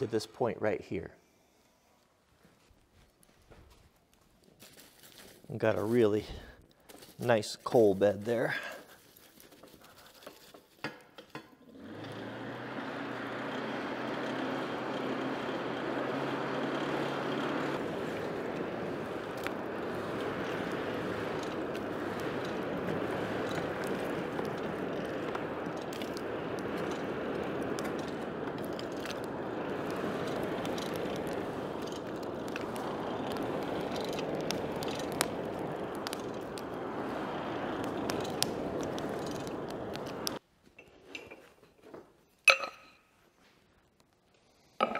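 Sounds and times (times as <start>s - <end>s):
forge blower rushing: 11.7s - 40.4s
low hum: 12.7s - 40.4s
small clicks: 17.6s - 40.4s.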